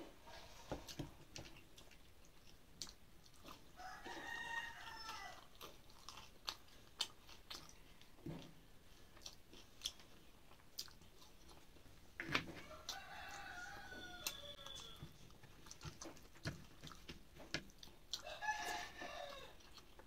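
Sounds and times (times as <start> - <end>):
chewing and eating clicks: 1.3 - 3.7, 4.8 - 8.1, 9.2 - 11.7, 14.2 - 18.8, 19.5 - 20.0
rooster crowing: 3.8 - 5.5, 12.6 - 15.1, 18.2 - 19.6.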